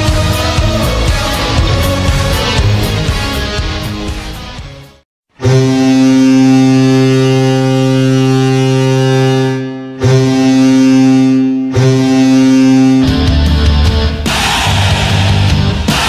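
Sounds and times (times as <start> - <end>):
deep goal horn blasts: 5.3 - 13.6.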